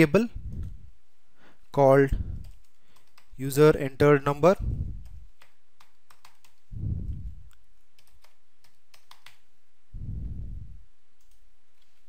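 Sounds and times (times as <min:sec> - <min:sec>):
low muffled rumbles: 0:00.3 - 0:01.0, 0:04.6 - 0:05.3, 0:06.7 - 0:07.6, 0:09.9 - 0:10.8.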